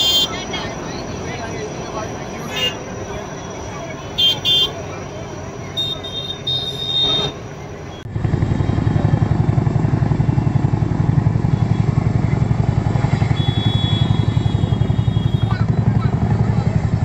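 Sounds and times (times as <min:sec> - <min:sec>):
helicopter rotors thudding: 0:08.1 - 0:17.0.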